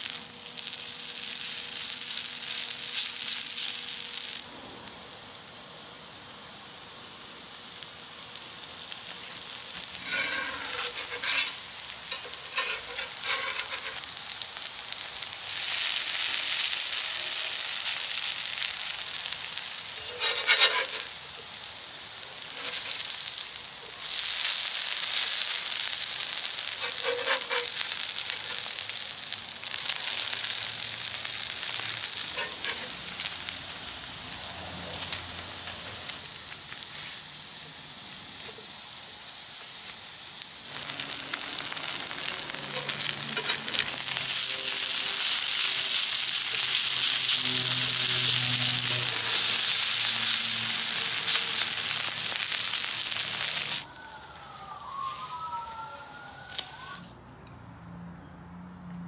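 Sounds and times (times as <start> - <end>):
pancakes sizzling in oil: 0.0 - 53.9
faint whistling tones: 53.9 - 56.9.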